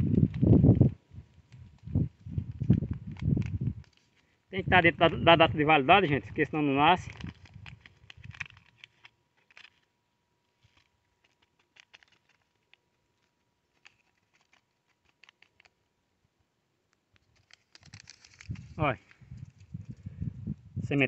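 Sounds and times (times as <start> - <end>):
paper seed packet crinkling: 0.0 - 15.9, 17.0 - 20.1.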